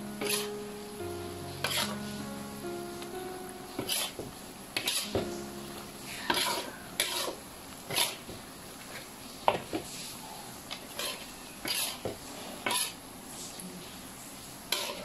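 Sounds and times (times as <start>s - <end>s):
faint sizzle: 0.0s - 15.0s
metal spatula scraping a wok: 0.2s - 0.5s, 1.7s - 1.9s, 6.3s - 8.2s, 11.0s - 12.0s, 14.7s - 15.0s.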